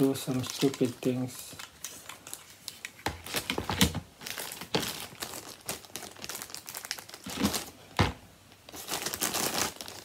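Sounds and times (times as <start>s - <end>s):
plastic packaging crinkling: 0.0s - 7.8s, 8.6s - 10.0s.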